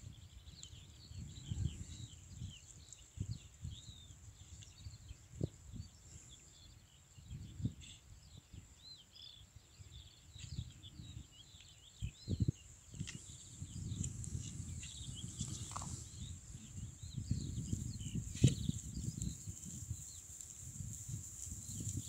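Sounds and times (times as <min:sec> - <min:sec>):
small birds chirping: 0:00.0 - 0:22.0
wind or handling thumps on microphone: 0:12.0 - 0:22.0.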